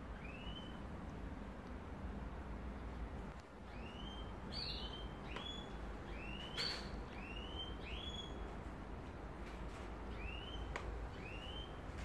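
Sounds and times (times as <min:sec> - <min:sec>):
low steady hum: 0:00.0 - 0:12.0
bird chirping: 0:00.1 - 0:00.8, 0:03.7 - 0:08.5, 0:10.1 - 0:12.0.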